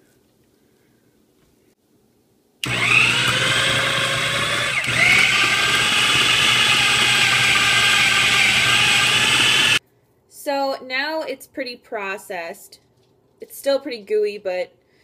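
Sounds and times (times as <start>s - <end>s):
food processor motor whine: 2.6s - 9.8s.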